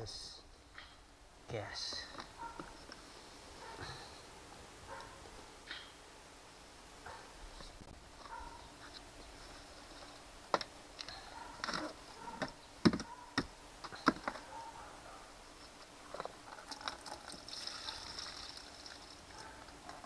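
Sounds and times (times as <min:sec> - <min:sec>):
gasoline trickling: 0:16.5 - 0:19.8.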